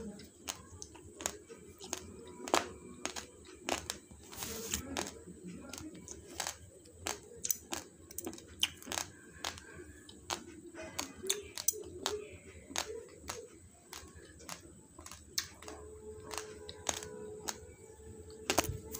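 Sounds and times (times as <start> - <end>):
faint music: 0.0 - 18.9
rice crunching between teeth: 0.2 - 18.9.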